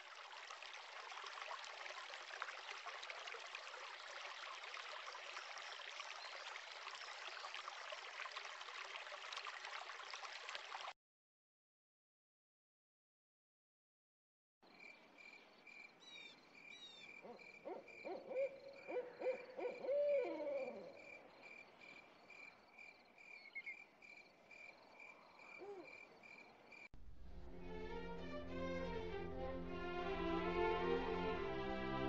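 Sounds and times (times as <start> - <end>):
owl hooting: 17.2 - 21.0
bird chirps: 23.3 - 23.9
orchestra playing: 27.0 - 32.0.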